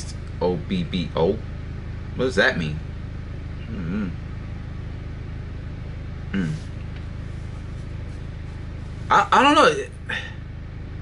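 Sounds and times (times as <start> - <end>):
low hum: 0.0 - 11.0
man's wordless vocal sound: 6.4 - 6.7.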